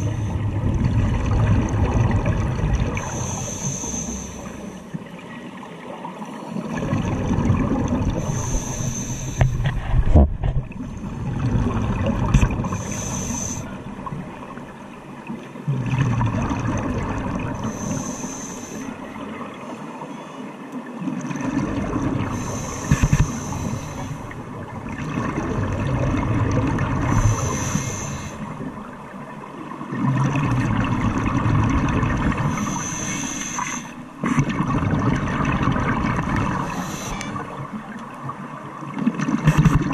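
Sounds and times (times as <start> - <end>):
diver inhaling through regulator: 0.0 - 0.5, 3.0 - 4.9, 8.2 - 9.8, 12.6 - 13.8, 17.6 - 19.0, 22.3 - 24.4, 27.0 - 28.6, 32.4 - 34.1, 36.6 - 37.6
bubbling exhaled air: 15.7 - 18.9, 21.3 - 28.9.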